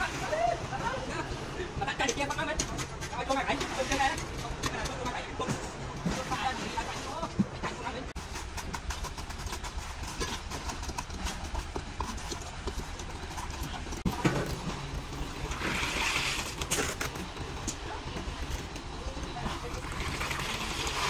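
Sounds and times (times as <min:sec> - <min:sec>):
concrete pouring from buckets: 0:14.0 - 0:17.7, 0:19.4 - 0:21.0.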